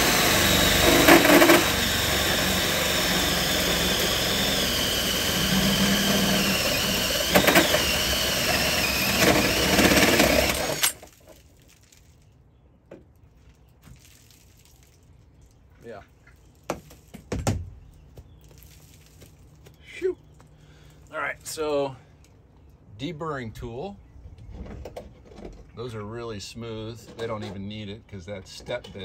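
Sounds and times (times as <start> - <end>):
drill whining through sheet metal: 0.0 - 11.1.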